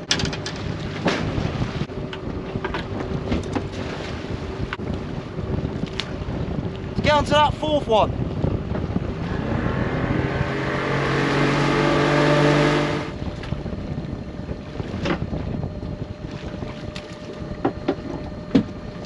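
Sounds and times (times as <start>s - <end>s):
sharp knocks on boat: 0.0s - 1.6s, 14.9s - 15.5s, 16.7s - 18.8s
outboard motor running: 0.0s - 19.0s
water noise: 0.0s - 19.0s
wind: 0.0s - 19.0s.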